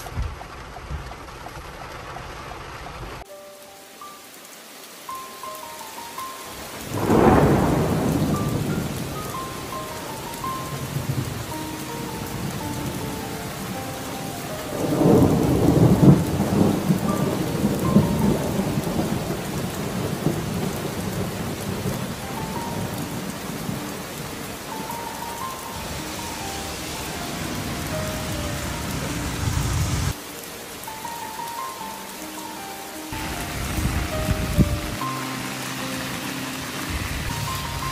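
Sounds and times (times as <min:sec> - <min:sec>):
steady rain: 0:00.0 - 0:37.9
thunder rolling: 0:06.8 - 0:13.1, 0:14.6 - 0:23.9.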